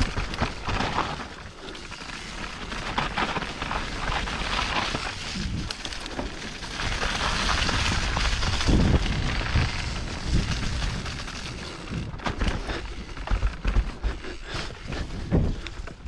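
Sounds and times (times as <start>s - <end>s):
tyres rolling over dirt: 0.0s - 16.0s
bike knocks and rattles: 2.5s - 16.0s
wind on microphone: 6.9s - 12.2s.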